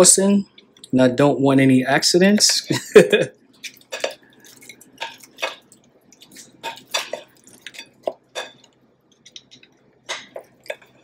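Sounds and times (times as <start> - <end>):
wet squelches of sticky sauce: 3.5 - 11.0.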